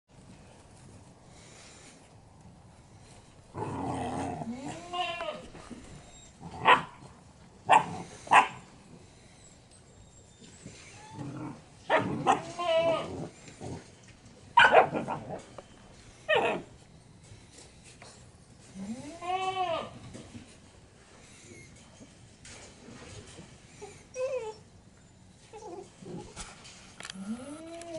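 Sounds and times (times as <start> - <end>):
puppies yelping and whining: 4.5 - 6.8, 9.1 - 13.0, 23.7 - 24.7, 25.4 - 26.3.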